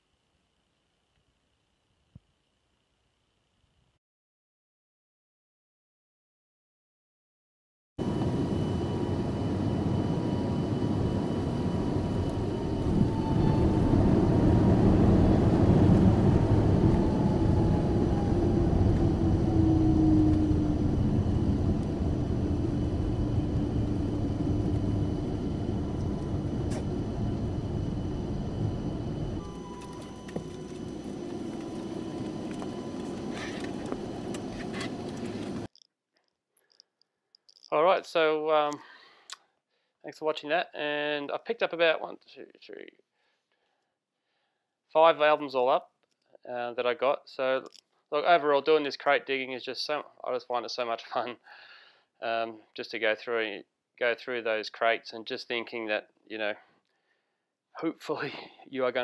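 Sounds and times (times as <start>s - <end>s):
jet engines rumbling: 8.0s - 35.7s
whine sliding down in pitch: 8.0s - 35.7s.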